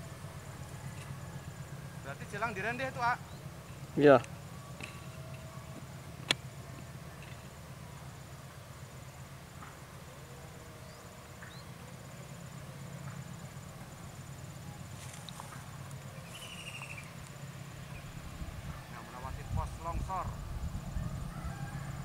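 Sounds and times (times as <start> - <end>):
low steady rumble: 0.0 - 22.0
insect pulsing call: 0.1 - 22.0
bird chirps: 3.2 - 3.8, 10.8 - 11.9, 16.1 - 17.2
bird trill: 10.8 - 11.8, 16.1 - 17.2.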